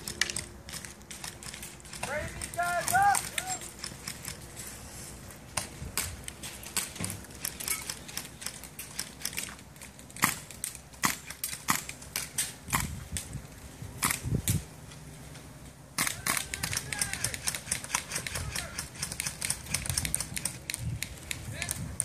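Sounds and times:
airsoft guns firing: 0.0s - 4.4s, 10.2s - 12.9s, 16.0s - 21.8s.

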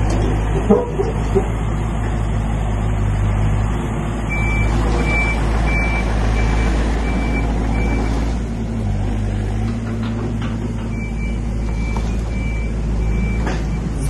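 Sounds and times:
diesel engine running: 0.0s - 14.0s
high-pitched reversing alarm beeps: 4.3s - 8.1s.

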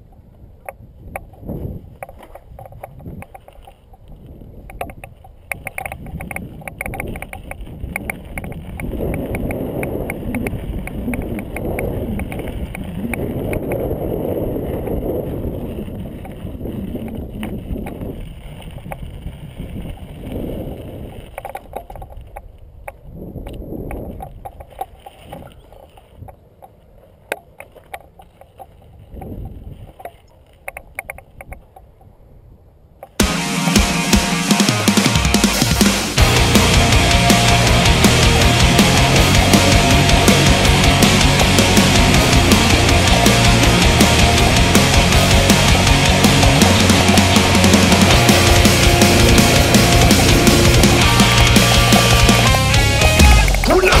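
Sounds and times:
wind buffeting microphone: 0.0s - 26.6s, 27.9s - 33.1s
mountain bike over rocky ground: 0.0s - 33.2s, 37.8s - 54.0s
bike clicks and rattles: 0.1s - 32.2s.

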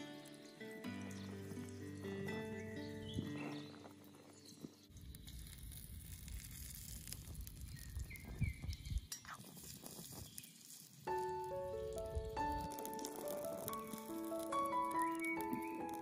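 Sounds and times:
wind rumble on microphone: 4.9s - 10.4s, 11.7s - 12.8s.

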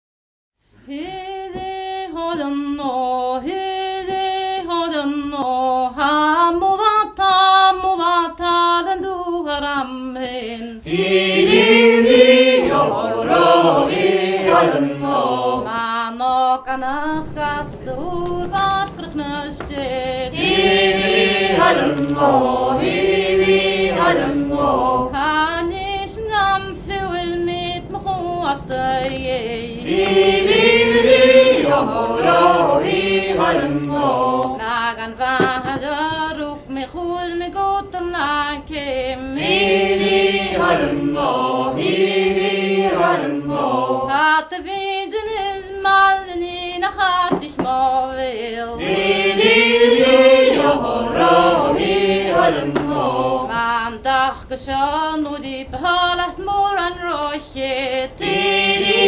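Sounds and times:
unaccompanied voices singing: 0.9s - 59.0s.

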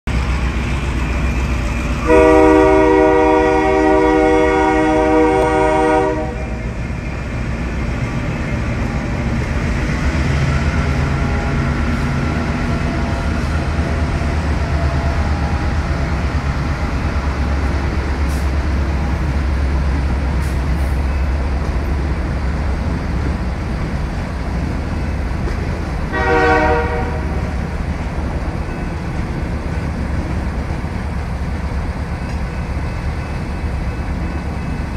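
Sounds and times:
train wheels rumbling: 0.1s - 34.9s
train horn blast: 2.0s - 6.7s, 26.1s - 27.5s.

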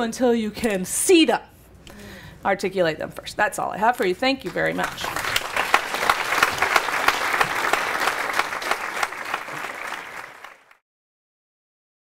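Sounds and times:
audience applauding: 4.5s - 10.8s.

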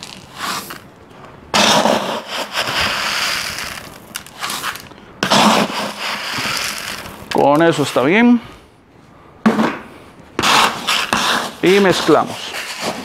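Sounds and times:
gravel pouring into plastic bucket: 0.0s - 0.8s, 2.1s - 7.4s.

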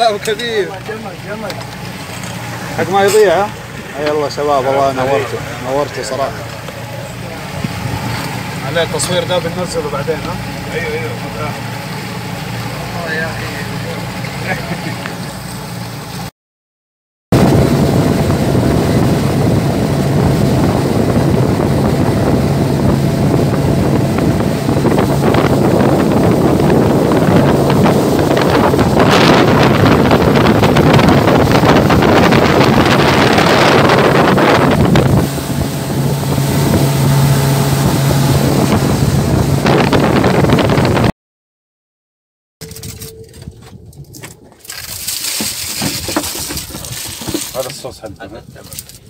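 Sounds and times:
motorboat engine drone: 0.0s - 16.3s, 17.4s - 41.1s, 42.6s - 47.4s
rushing water: 0.0s - 16.3s
wind buffeting the microphone: 7.2s - 8.8s, 17.4s - 41.1s.

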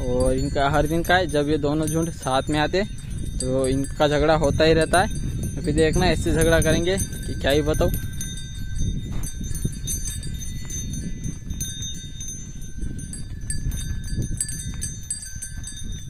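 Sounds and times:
small bells jingling: 0.0s - 16.0s.

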